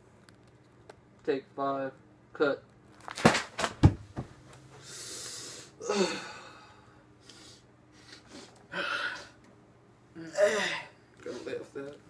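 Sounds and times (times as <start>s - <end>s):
breathy hiss: 4.8s - 9.4s.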